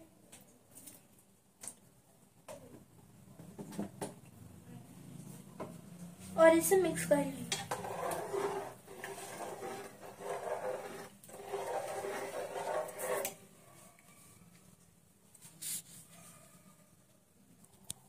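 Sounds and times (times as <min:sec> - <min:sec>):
ladle stirring rice in pot: 0:07.6 - 0:13.4.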